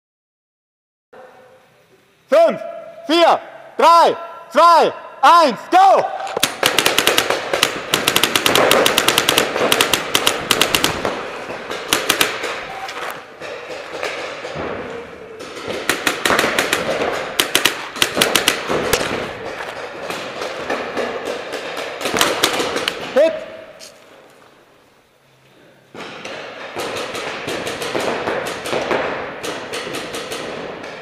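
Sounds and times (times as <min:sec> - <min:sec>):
paintball markers firing: 0:06.2 - 0:13.3, 0:15.4 - 0:19.4, 0:20.1 - 0:23.1.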